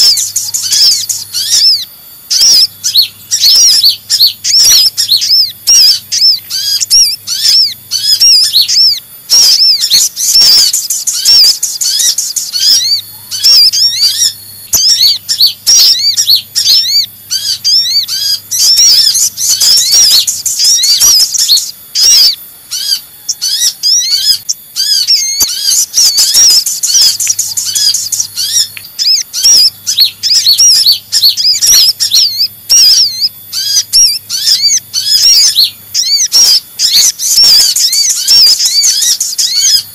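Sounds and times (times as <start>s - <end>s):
sunbirds chattering: 0.0s - 39.9s.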